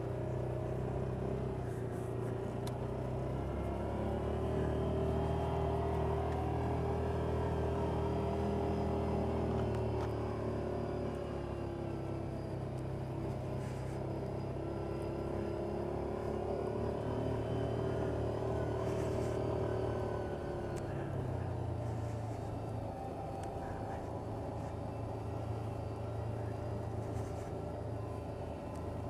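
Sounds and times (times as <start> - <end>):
vehicle engine droning inside cab: 0.0 - 29.0.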